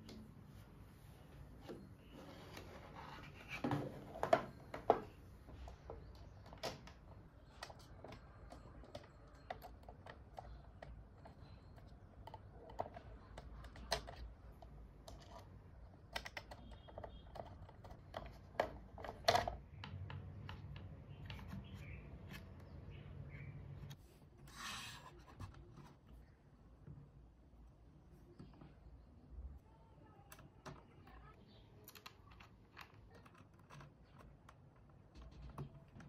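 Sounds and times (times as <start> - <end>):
plastic parts clicking and tapping: 3.6 - 22.7, 30.3 - 36.0.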